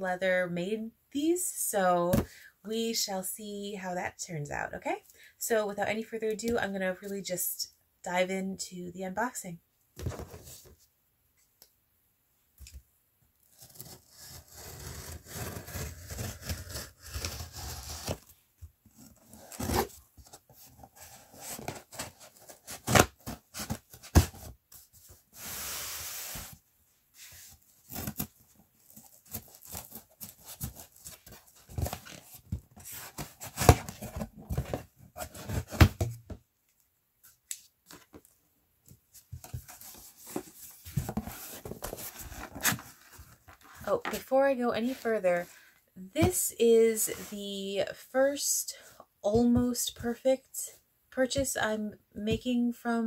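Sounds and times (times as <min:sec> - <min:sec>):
tape tearing: 0:13.5 - 0:18.3.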